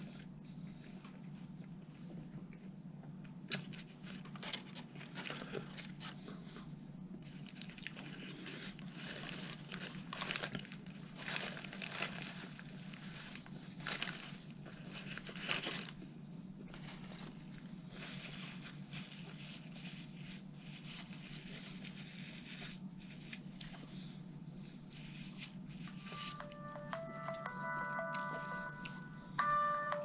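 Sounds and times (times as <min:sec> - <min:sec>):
steady low hum: 0:00.0 - 0:30.0
paper wrapper crinkling: 0:03.5 - 0:06.2, 0:07.2 - 0:16.0, 0:16.7 - 0:24.0, 0:24.9 - 0:26.7.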